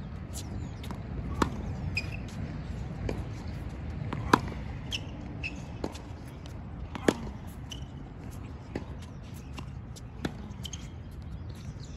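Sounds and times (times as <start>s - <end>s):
racket striking tennis ball: 4.0s - 4.7s, 6.9s - 7.9s.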